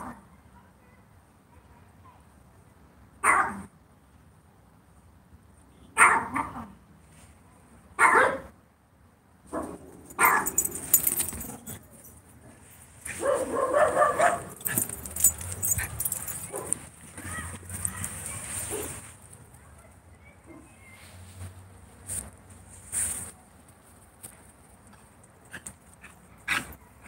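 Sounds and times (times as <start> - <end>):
dog barking: 3.2 - 3.7, 6.0 - 6.7, 8.0 - 8.5, 9.5 - 10.8, 13.1 - 16.8.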